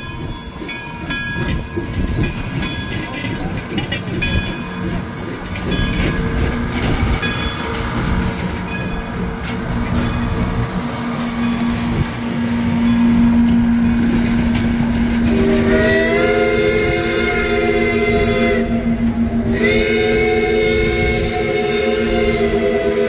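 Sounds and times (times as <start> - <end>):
train warning horn blasts: 11.2 - 23.0.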